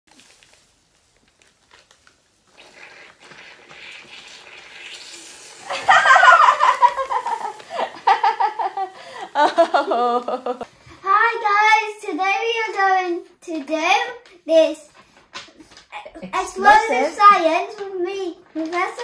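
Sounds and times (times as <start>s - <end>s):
faint hiss: 0.1s - 18.8s
woman laughing: 5.7s - 10.7s.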